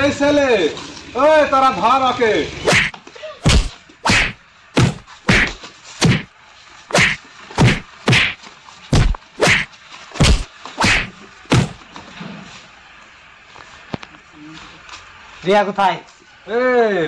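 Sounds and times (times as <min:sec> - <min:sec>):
punches whacking: 0:02.7 - 0:06.3, 0:06.9 - 0:11.8.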